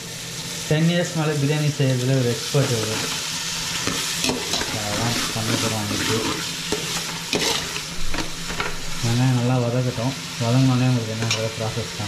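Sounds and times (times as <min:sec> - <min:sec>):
onions sizzling in oil: 0:00.0 - 0:12.0
ladle scraping metal pot: 0:03.8 - 0:08.8.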